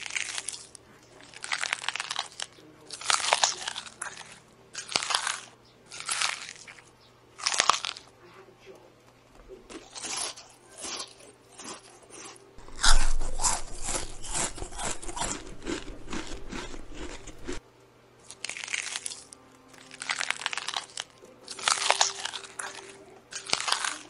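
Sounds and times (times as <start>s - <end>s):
rabbit chewing cabbage: 0.0s - 17.6s, 18.2s - 24.0s.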